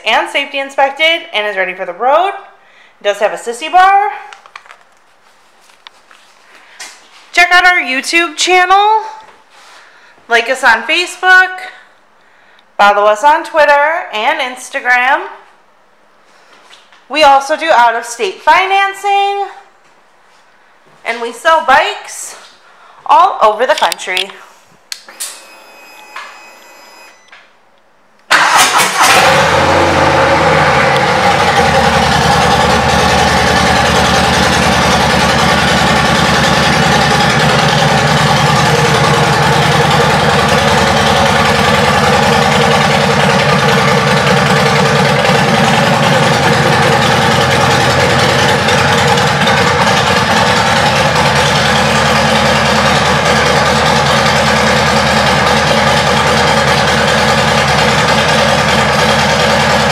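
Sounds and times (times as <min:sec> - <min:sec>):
motorcycle engine starting and idling: 0:28.3 - 0:59.9.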